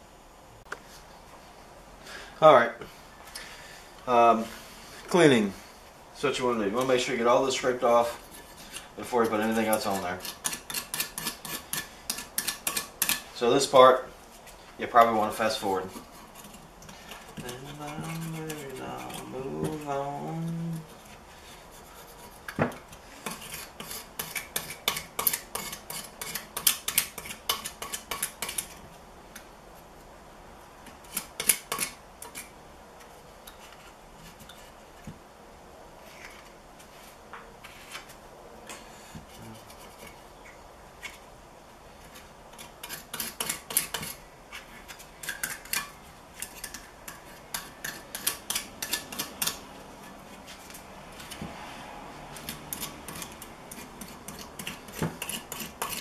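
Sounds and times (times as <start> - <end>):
hand scraper scraping metal: 7.6 - 13.8, 15.0 - 28.8, 42.0 - 51.5, 52.3 - 56.0.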